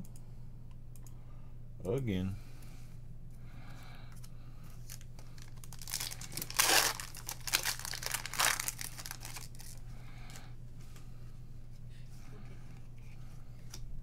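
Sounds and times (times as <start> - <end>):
wrapper tearing and crinkling: 4.8 - 9.8.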